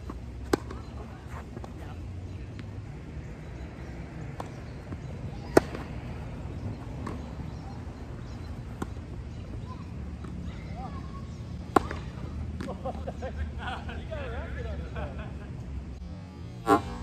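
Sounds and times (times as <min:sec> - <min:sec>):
tennis ball bouncing: 0:00.0 - 0:01.8, 0:03.8 - 0:10.4, 0:11.6 - 0:12.8.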